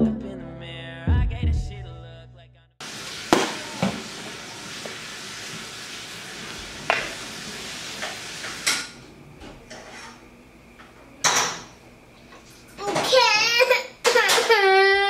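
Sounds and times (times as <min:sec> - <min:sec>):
frying sizzle: 0:02.8 - 0:09.0
utensils clinking on pans: 0:08.0 - 0:09.0.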